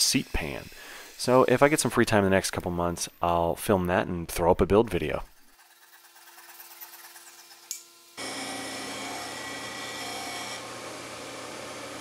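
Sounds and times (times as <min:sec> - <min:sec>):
disc sander grinding wood: 0:05.4 - 0:12.0.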